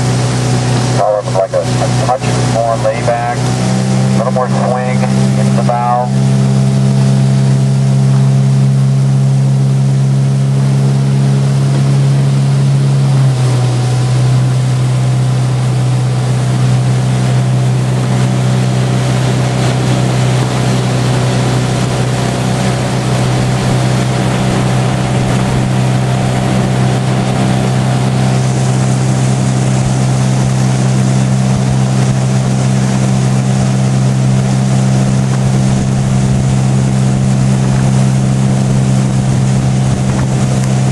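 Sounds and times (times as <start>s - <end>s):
hiss of water and wind: 0.0s - 6.1s, 18.0s - 40.9s
motorboat engine running: 0.0s - 40.9s.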